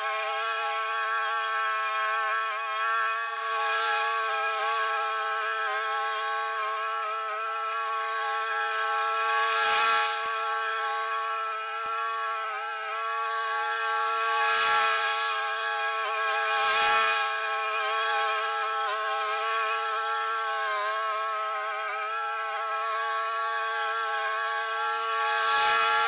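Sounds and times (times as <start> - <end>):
lawn mower cutting grass: 0.0 - 26.0.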